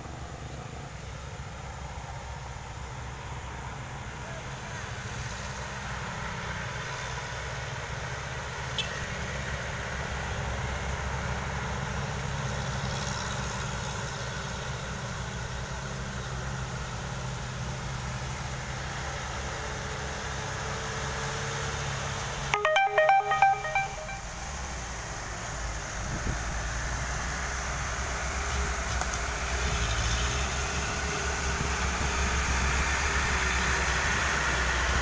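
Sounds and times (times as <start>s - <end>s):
truck engines droning: 0.0s - 23.9s, 24.5s - 35.0s
musical truck horn: 22.6s - 24.8s.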